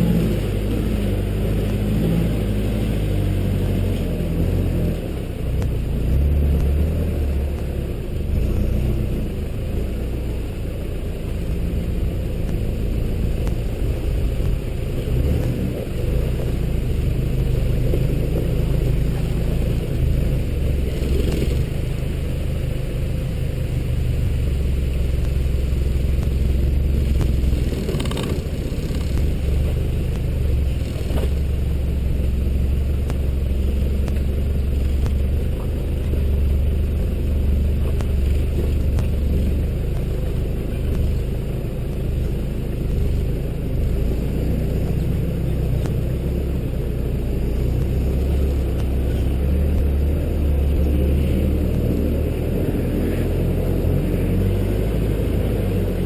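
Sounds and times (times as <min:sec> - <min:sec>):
vehicle engine rumbling under load: 0:00.0 - 0:56.0.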